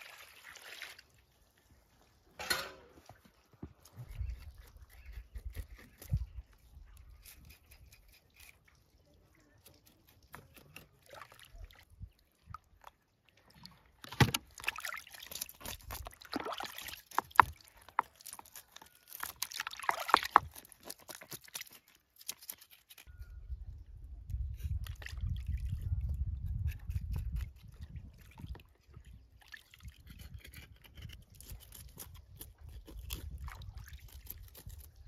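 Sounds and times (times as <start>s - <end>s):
knife scraping fish scales: 3.9s - 6.3s, 7.0s - 8.7s, 16.9s - 23.2s, 26.4s - 27.8s, 29.8s - 35.0s
water sloshing in plastic basin: 12.8s - 18.4s, 19.4s - 21.7s.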